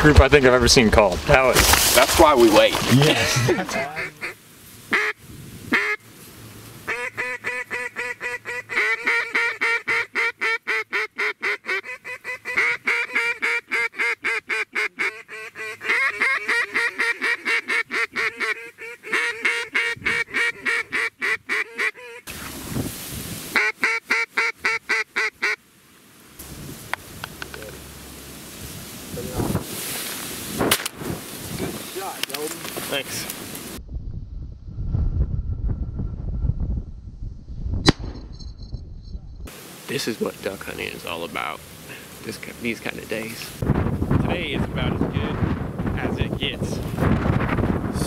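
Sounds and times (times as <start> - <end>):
duck call quacking: 3.7 - 6.0, 6.9 - 22.3, 23.5 - 25.6.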